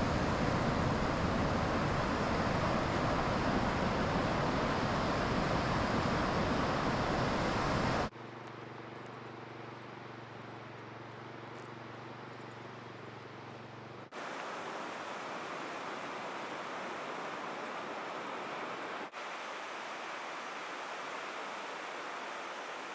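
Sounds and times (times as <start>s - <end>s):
ocean surf rushing: 0.0s - 8.1s, 14.1s - 22.9s
vehicle engine hum: 0.0s - 14.2s.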